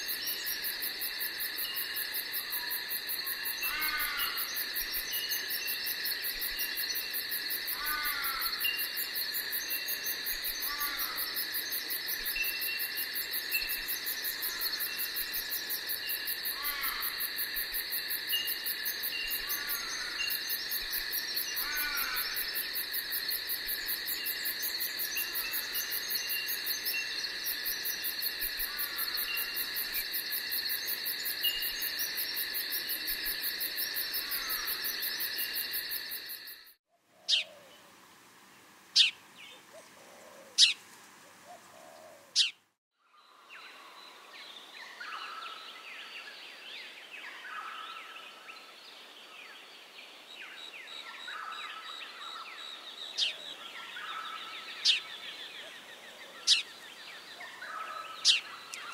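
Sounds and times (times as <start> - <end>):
insect drone: 0.0 - 36.8
bird calls: 37.2 - 37.7, 39.0 - 40.8, 41.4 - 42.6, 50.8 - 58.9.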